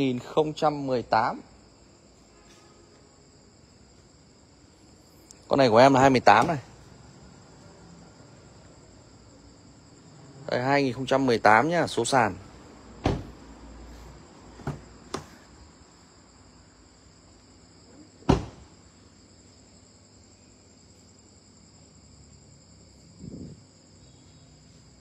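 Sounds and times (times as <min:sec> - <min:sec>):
car door shutting: 0:13.0 - 0:13.4, 0:18.2 - 0:18.7
knocks: 0:13.0 - 0:13.4.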